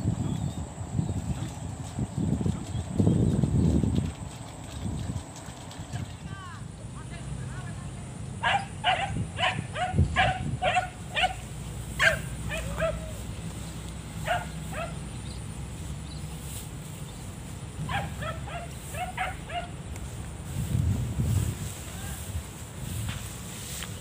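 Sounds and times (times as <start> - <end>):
dog yelping barks: 8.4 - 11.4, 12.0 - 13.1, 14.2 - 15.0, 17.9 - 19.7.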